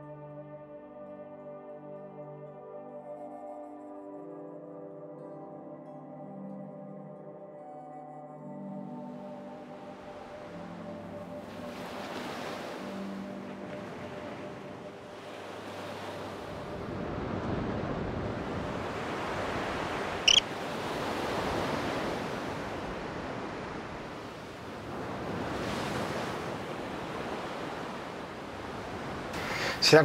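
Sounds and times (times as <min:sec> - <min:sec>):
ocean waves washing in: 0:10.1 - 0:30.0.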